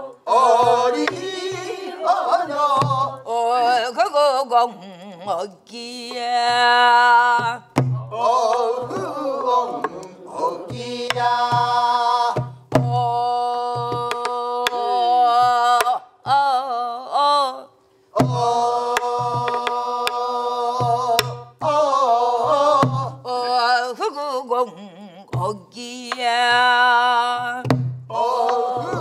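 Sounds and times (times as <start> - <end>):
woman singing folk song: 0.0 - 9.2, 10.7 - 17.8, 22.4 - 27.8
barrel drum thumps: 7.4 - 9.2, 10.7 - 13.0, 27.6 - 29.0.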